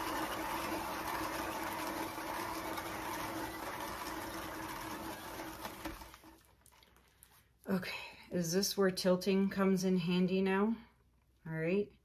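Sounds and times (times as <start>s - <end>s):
paint spinner whirring: 0.0s - 6.7s.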